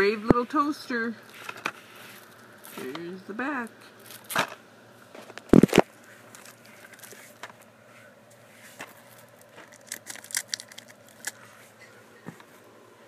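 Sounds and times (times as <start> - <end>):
knife cutting plastic shrink-wrap: 9.2 - 11.4.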